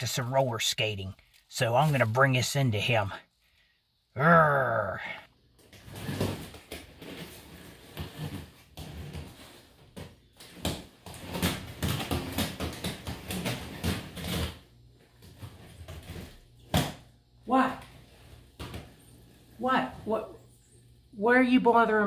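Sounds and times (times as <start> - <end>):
roller skates rolling on concrete: 4.5 - 21.0.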